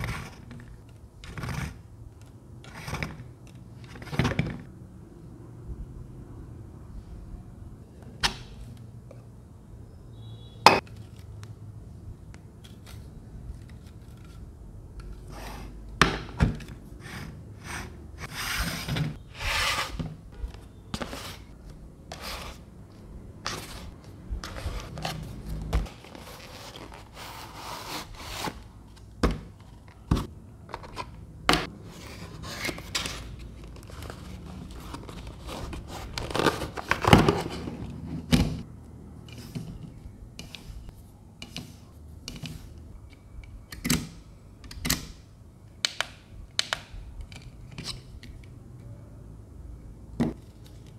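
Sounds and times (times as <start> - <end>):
cardboard box scraping and sliding: 25.9 - 28.6.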